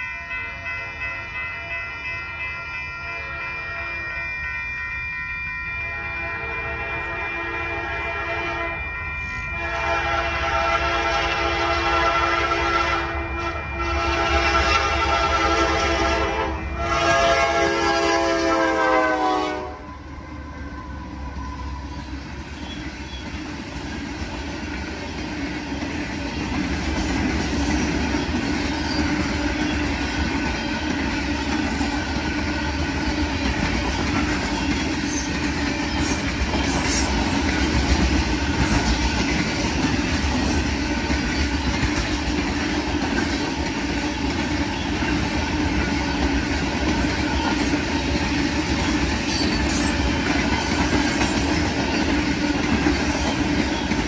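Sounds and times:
train cars rumbling past: 0:00.0 - 0:54.0
locomotive air horn: 0:05.9 - 0:08.8, 0:09.5 - 0:20.4
wheel clickety-clack: 0:21.3 - 0:54.0.

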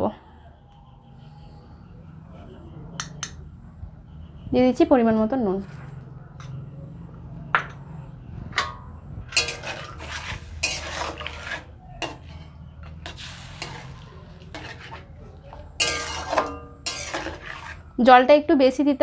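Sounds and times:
metal spatula clinking and scraping pan: 0:08.6 - 0:17.9.

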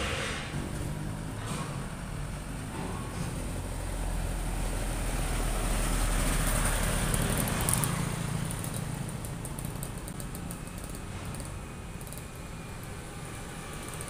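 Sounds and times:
diesel truck driving past: 0:00.0 - 0:09.2
steady traffic hum: 0:00.0 - 0:14.0.

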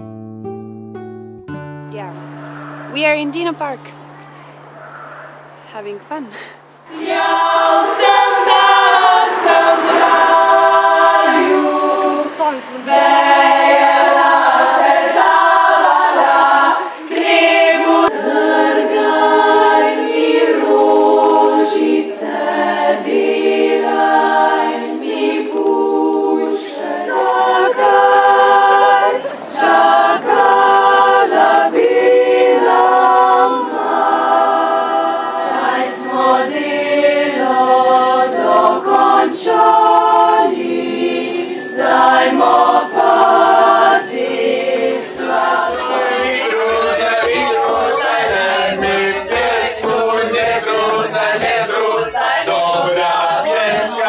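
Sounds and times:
a cappella group singing: 0:06.9 - 0:54.0.

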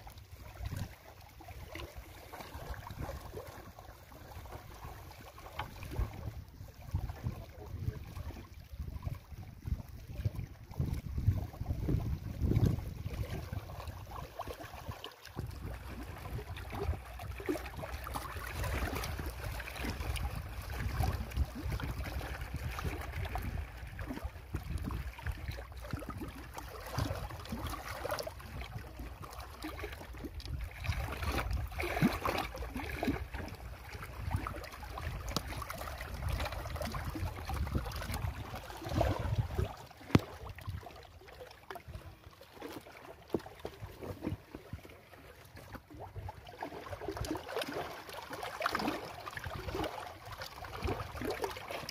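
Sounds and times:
wind rumbling on microphone: 0:00.0 - 0:41.3
water lapping against rocks: 0:00.0 - 0:51.9.

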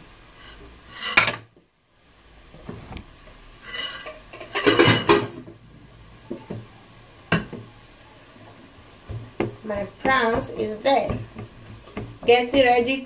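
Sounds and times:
kitchenware clattering on pan: 0:00.9 - 0:01.5, 0:03.6 - 0:05.6, 0:09.1 - 0:13.0.

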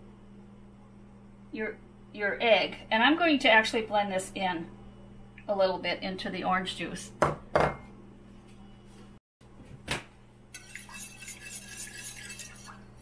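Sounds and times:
whisk clinking against glass bowl: 0:10.5 - 0:13.0.

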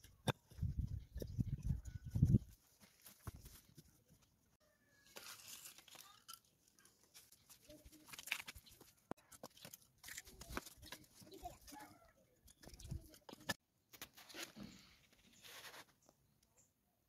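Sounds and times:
dry leaves crunching underfoot: 0:05.0 - 0:06.3.

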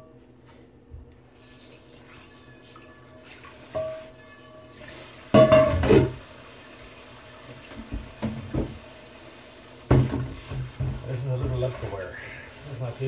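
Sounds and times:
faucet running into metal sink: 0:01.3 - 0:13.0
pans clattering in sink: 0:03.7 - 0:04.2, 0:05.3 - 0:06.2, 0:07.6 - 0:08.8, 0:09.8 - 0:12.0.

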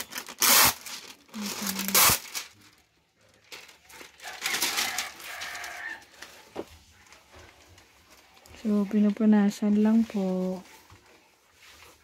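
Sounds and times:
plastic film crinkling: 0:00.0 - 0:12.0.

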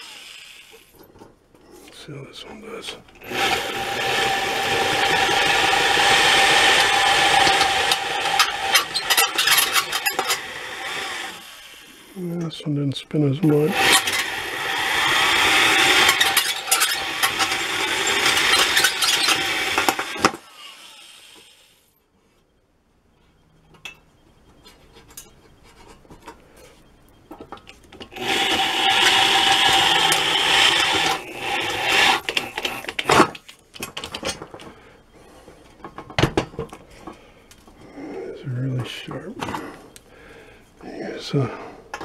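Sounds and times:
electric drill boring steel rivet: 0:00.0 - 0:01.0, 0:03.2 - 0:12.2, 0:13.5 - 0:21.9, 0:27.4 - 0:34.4
clicks and knocks of handling metal: 0:23.7 - 0:28.1, 0:32.2 - 0:34.8, 0:35.5 - 0:37.8.

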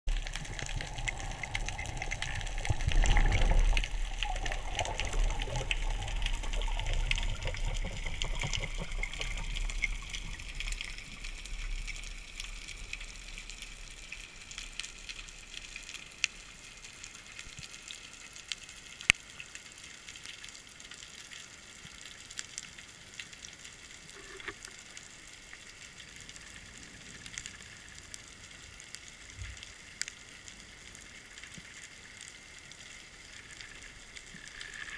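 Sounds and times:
underwater water rushing: 0:00.1 - 0:15.8, 0:32.9 - 0:34.9.

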